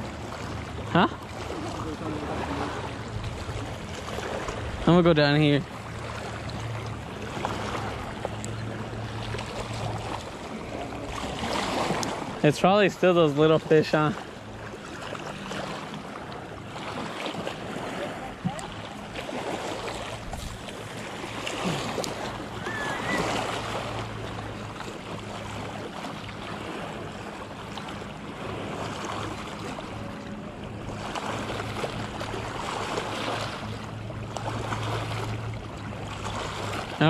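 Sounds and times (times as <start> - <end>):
small waves lapping on rocks: 0.0 - 37.0
wind noise on microphone: 20.2 - 20.6.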